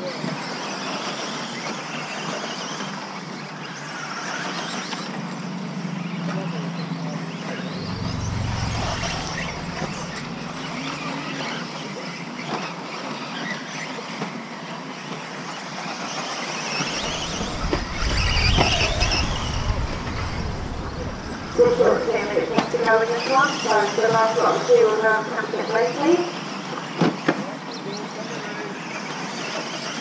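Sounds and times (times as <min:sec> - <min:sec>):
low rumble: 0:07.3 - 0:11.4, 0:16.8 - 0:23.4
electric motor whines: 0:07.7 - 0:11.5.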